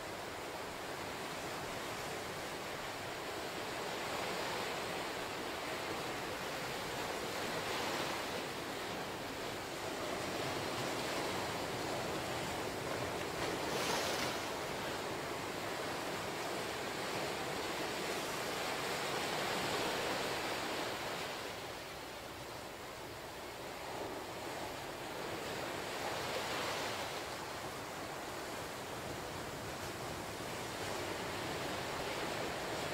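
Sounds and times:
ocean waves breaking on beach: 0.0 - 32.9.

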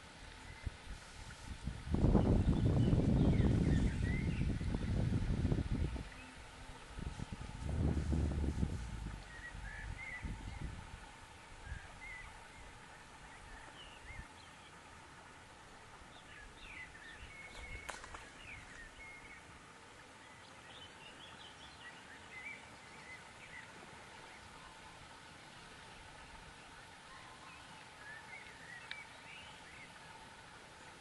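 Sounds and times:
low rumble: 6.8 - 11.1
small birds chirping: 9.0 - 10.8, 16.1 - 19.5, 26.7 - 30.0.

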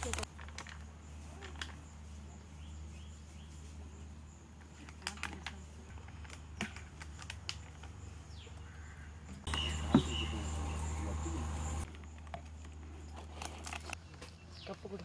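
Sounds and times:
steady low hum: 8.0 - 14.6.

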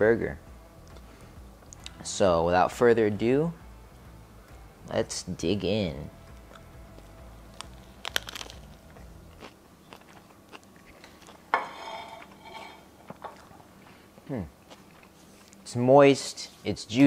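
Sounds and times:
person chewing: 7.5 - 11.5, 13.0 - 15.6
crunchy bite clicks: 7.6 - 11.3
plate clattering on stone countertop: 11.5 - 13.4.

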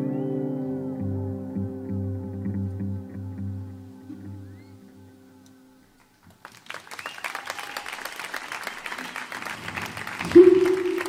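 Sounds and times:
electric guitar note: 0.0 - 5.8
audience applauding: 6.0 - 11.0.

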